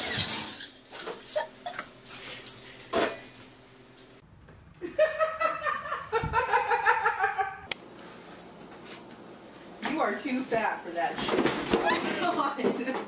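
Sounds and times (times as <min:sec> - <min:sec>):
person laughing high-pitched: 0:04.8 - 0:07.7.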